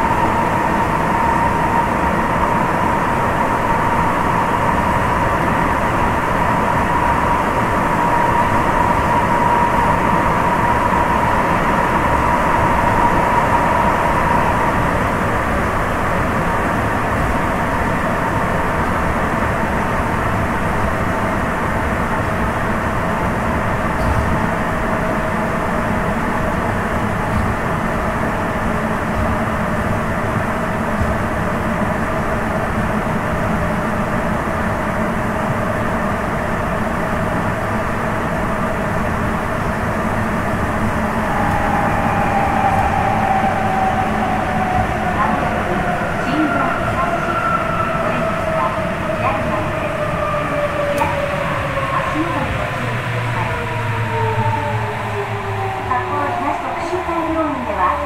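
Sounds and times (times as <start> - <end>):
train running rumble: 0.0 - 58.0
high whine falling in pitch: 39.2 - 58.0.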